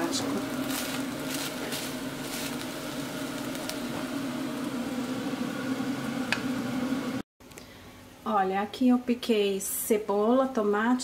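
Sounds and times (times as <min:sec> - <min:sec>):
meat sizzling in a pot: 0:00.0 - 0:07.2
steady mechanical hum: 0:00.0 - 0:11.0.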